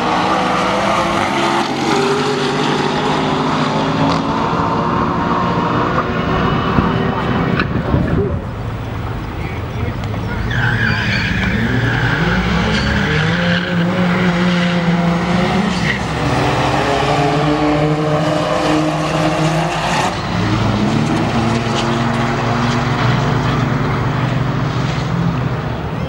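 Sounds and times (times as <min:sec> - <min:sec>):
car engines accelerating hard: 0:00.0 - 0:26.0.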